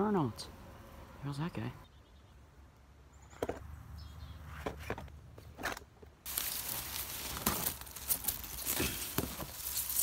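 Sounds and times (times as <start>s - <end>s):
loud rustling and scraping: 4.6s - 10.0s.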